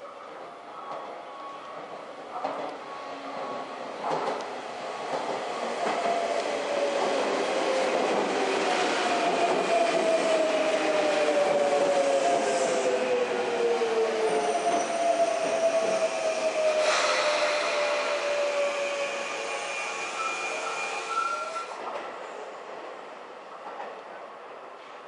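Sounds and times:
electric train pulling in: 0:05.5 - 0:21.8.

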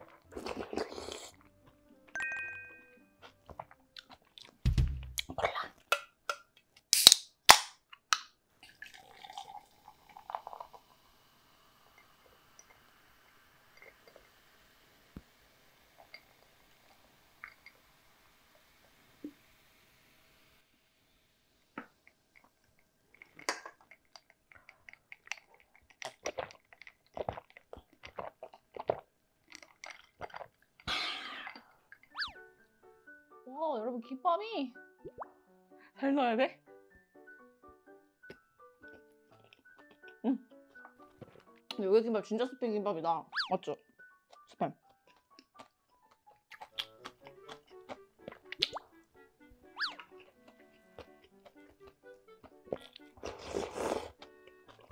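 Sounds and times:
can ring-pull snapping open: 0:05.9 - 0:08.3
cola fizzing in a glass: 0:08.6 - 0:20.0.

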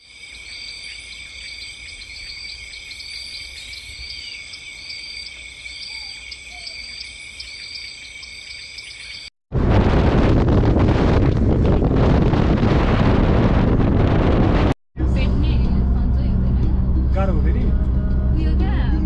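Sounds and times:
insects chirring: 0:00.0 - 0:09.3.

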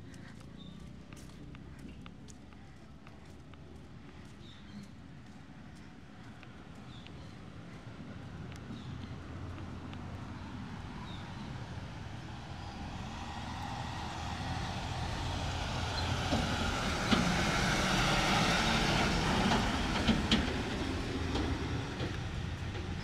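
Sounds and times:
vehicle passing by: 0:10.2 - 0:22.9.

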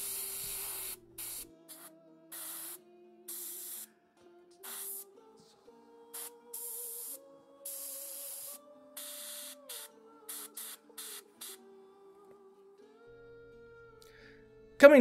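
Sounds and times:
airbrush spraying hiss: 0:00.0 - 0:03.9, 0:04.6 - 0:05.2, 0:06.1 - 0:11.6
soft background music: 0:00.0 - 0:15.0.

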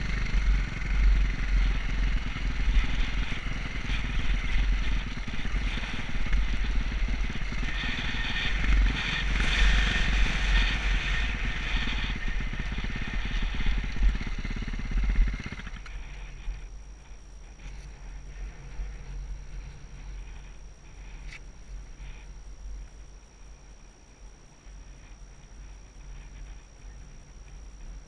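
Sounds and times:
dirt bike engine running: 0:00.0 - 0:28.0.

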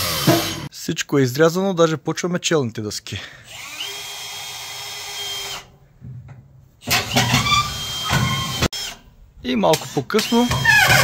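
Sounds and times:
cordless drill into wood: 0:00.0 - 0:00.7, 0:03.5 - 0:05.7, 0:06.8 - 0:09.0, 0:09.7 - 0:11.0.

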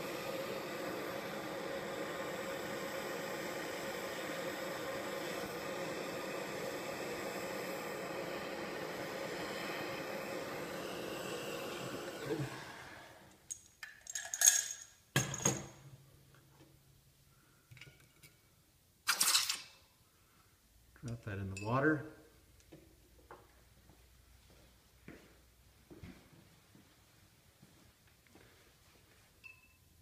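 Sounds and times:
hand torch hissing: 0:00.0 - 0:13.4.

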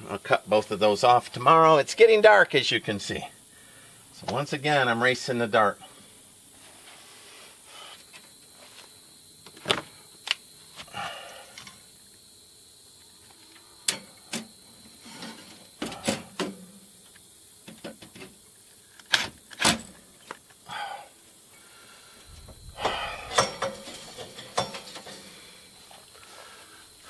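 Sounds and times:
sharp clicks and knocks: 0:22.8 - 0:25.3.

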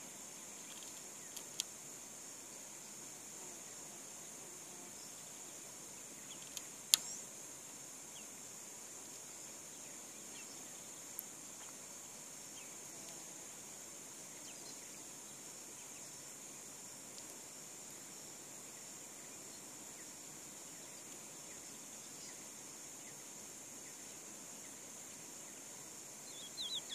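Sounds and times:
high-pitched insect drone: 0:00.0 - 0:26.9
faint bird chirps: 0:00.4 - 0:01.6, 0:04.9 - 0:07.4, 0:09.5 - 0:12.9, 0:14.2 - 0:16.3, 0:18.0 - 0:26.9.

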